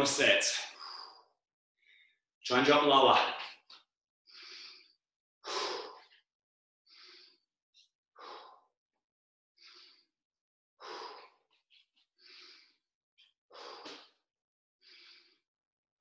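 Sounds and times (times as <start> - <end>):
man breathing heavily: 0.4 - 2.2, 4.3 - 6.2, 6.9 - 7.5, 8.2 - 8.8, 9.6 - 10.2, 10.8 - 15.5.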